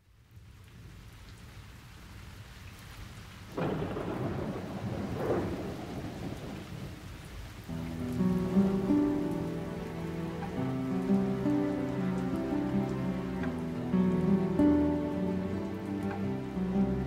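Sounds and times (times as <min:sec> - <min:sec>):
steady rain: 0:00.0 - 0:17.0
thunder rumble: 0:03.5 - 0:17.0.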